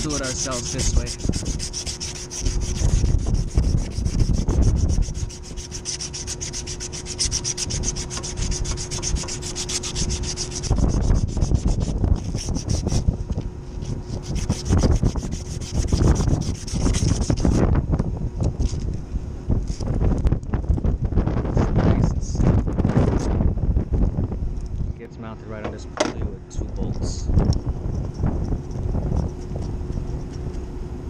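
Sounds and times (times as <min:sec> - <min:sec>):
sanding belt rasping on metal: 0:00.0 - 0:13.1, 0:13.8 - 0:17.6.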